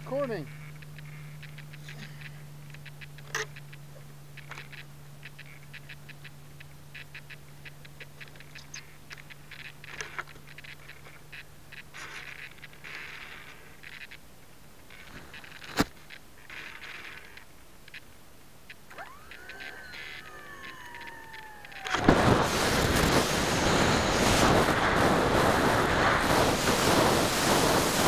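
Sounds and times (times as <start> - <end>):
low steady hum: 0.0 - 28.0
handling clicks and rustling: 14.8 - 18.1, 18.7 - 22.1.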